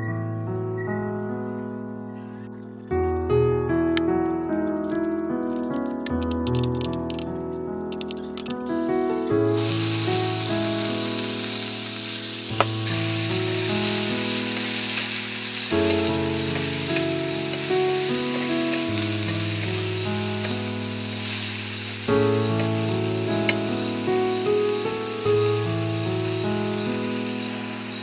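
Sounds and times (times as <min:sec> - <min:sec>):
sharp click: 0:04.8 - 0:08.6
vegetables sizzling in hot oil: 0:09.4 - 0:28.0.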